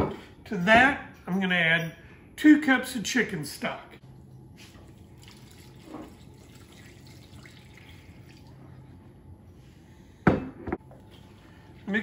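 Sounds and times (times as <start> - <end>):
liquid trickling into a pot: 4.7 - 8.7.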